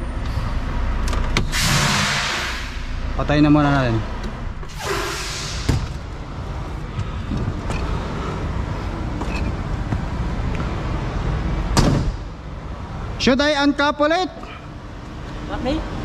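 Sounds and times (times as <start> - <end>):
low engine rumble: 0.0 - 13.7
short air hiss: 1.5 - 2.9, 4.7 - 5.7.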